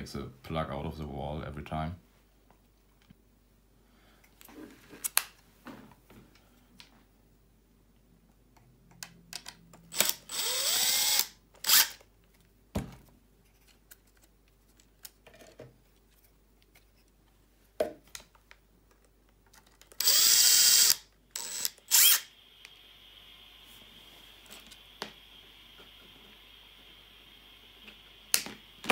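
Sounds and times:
electric screwdriver whirring: 9.9 - 12.0, 19.9 - 22.9.

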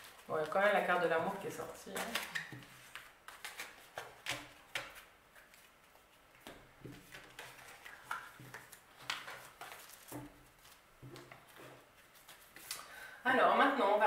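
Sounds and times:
cards sliding and tapping: 1.9 - 12.9.

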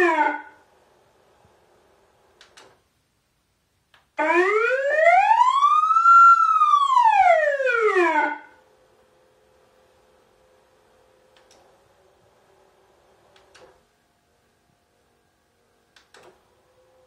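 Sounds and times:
police siren wail: 0.0 - 0.6, 4.2 - 8.6.

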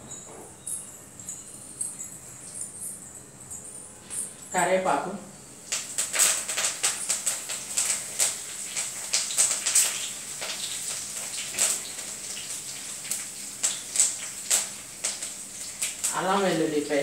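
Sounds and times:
oil sizzling in a pan: 4.8 - 17.0
crackles and pops: 5.7 - 16.2.

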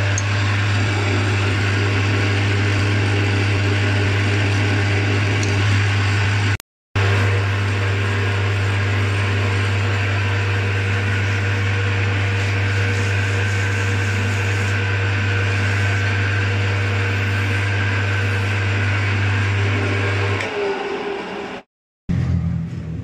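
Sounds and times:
metal lathe humming: 0.0 - 21.7
abrasive paper hissing on shaft: 8.1 - 18.6.

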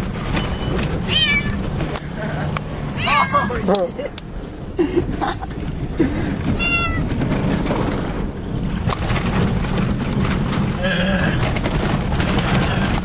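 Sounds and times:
truck engine rumble: 0.0 - 13.0
cat meowing: 1.1 - 1.6, 6.6 - 7.1.

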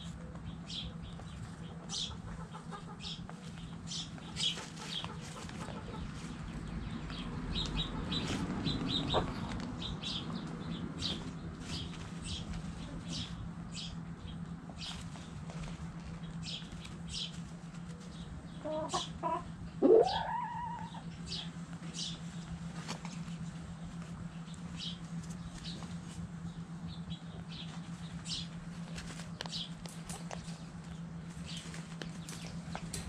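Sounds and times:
chickens clucking: 0.0 - 33.0
steady low hum: 0.0 - 33.0
chicken call rising in pitch: 18.7 - 21.0.

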